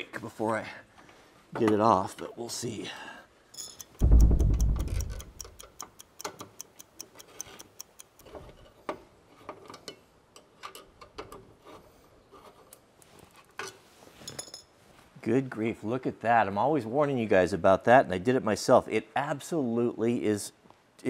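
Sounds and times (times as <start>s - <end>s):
clock ticking: 3.8s - 8.3s
deep boom: 4.0s - 5.3s.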